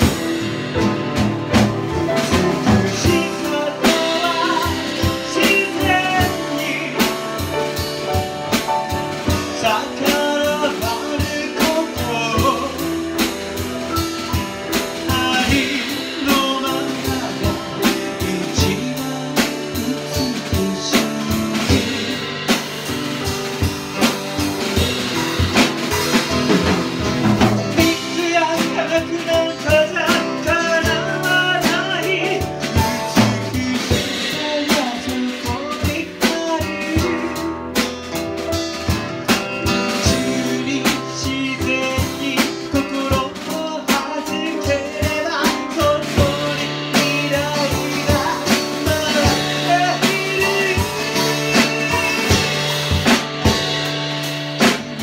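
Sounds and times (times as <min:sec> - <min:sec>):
drum kit: 0:00.0 - 0:55.0
guitar: 0:00.0 - 0:55.0
man singing into microphone: 0:01.7 - 0:07.8, 0:09.1 - 0:22.6, 0:27.6 - 0:37.9, 0:39.7 - 0:53.4.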